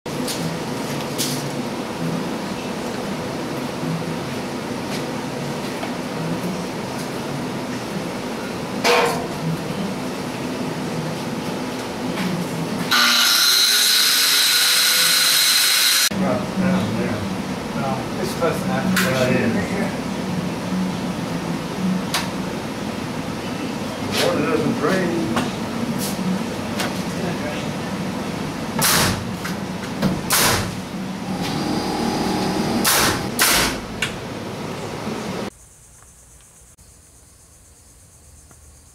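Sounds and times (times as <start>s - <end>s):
angle grinder high whine: 12.9s - 16.1s, 31.2s - 33.4s
steady low hum: 16.1s - 38.9s.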